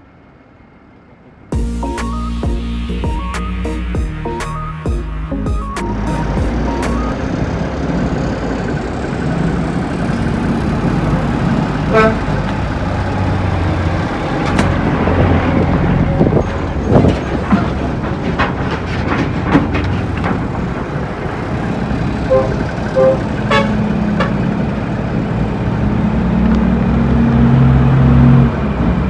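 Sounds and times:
diesel truck driving past: 0:00.0 - 0:29.0
knocks and rattles: 0:16.2 - 0:21.7
brief pitched tone: 0:22.3 - 0:23.2.

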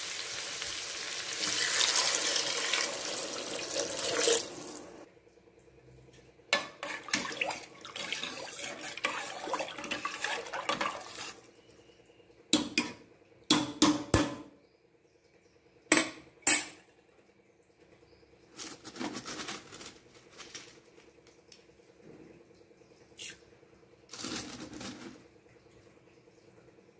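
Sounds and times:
spoon stirring sloshing liquid: 0:06.6 - 0:11.7.

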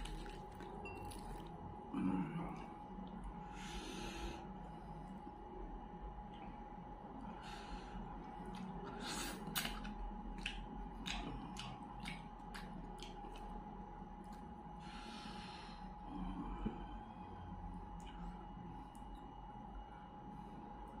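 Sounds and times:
man chewing: 0:00.0 - 0:01.5, 0:08.2 - 0:14.5.

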